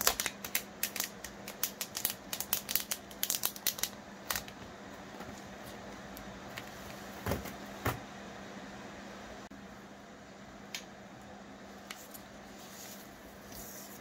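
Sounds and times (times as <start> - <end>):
plastic wrapping crinkling: 0.0 - 4.5.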